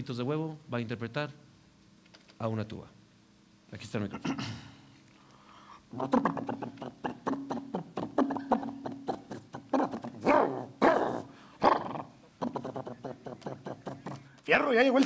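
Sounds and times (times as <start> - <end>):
man imitating tuba into microphone: 5.9 - 14.3.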